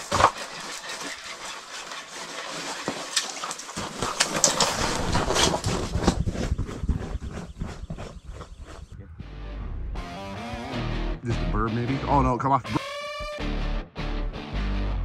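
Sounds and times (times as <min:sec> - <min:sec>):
footsteps crunching on snow: 0:00.0 - 0:09.0
rustling: 0:00.0 - 0:09.0.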